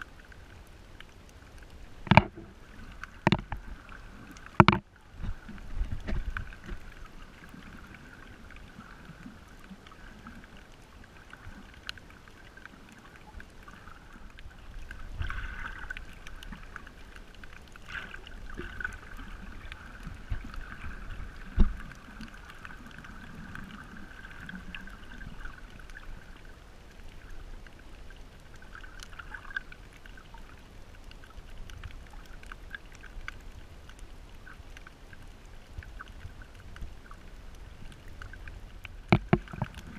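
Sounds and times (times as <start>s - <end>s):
underwater water sloshing: 0.0s - 39.9s
dull underwater thumps: 2.0s - 2.5s, 3.2s - 3.6s, 4.6s - 6.8s, 39.0s - 39.8s.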